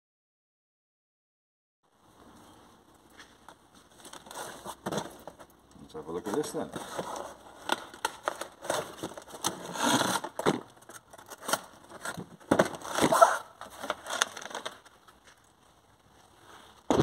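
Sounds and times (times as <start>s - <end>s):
scrapes and light knocks: 6.2s - 9.7s
cardboard box being opened: 6.4s - 14.9s.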